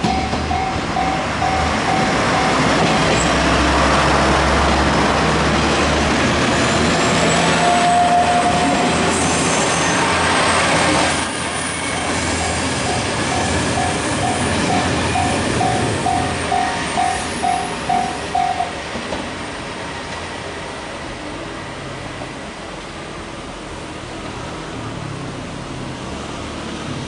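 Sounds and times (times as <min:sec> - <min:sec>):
level crossing warning bell: 0:00.0 - 0:02.8, 0:11.9 - 0:18.8
train wheels rumbling on rails: 0:00.0 - 0:26.1
diesel railcar engines: 0:00.0 - 0:27.0.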